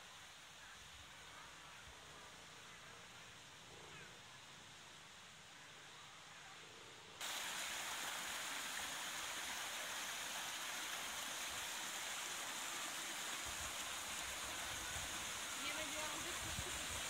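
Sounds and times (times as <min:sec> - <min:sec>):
water splashing into pond: 0:07.2 - 0:17.0.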